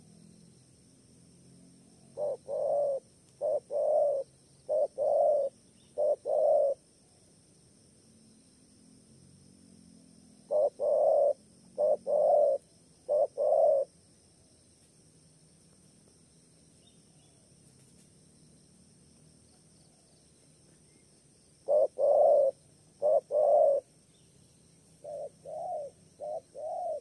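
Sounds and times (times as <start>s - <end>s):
dove cooing: 2.1s - 6.8s, 10.5s - 13.9s, 21.6s - 23.9s, 25.0s - 27.0s.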